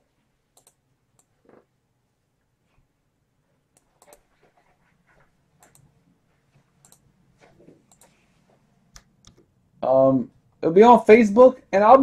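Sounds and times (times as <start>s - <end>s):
computer mouse and keyboard clicks: 0.5s - 1.6s, 3.8s - 4.8s, 5.6s - 5.9s, 6.8s - 8.4s.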